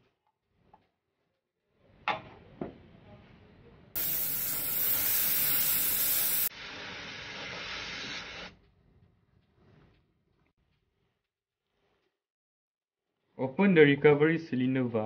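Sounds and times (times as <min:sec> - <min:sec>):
refrigerant hissing from hose: 0:04.0 - 0:08.5.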